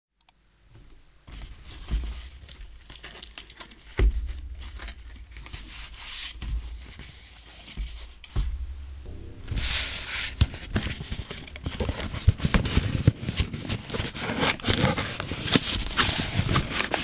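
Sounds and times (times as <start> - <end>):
cardboard packaging rustling: 1.4 - 8.3.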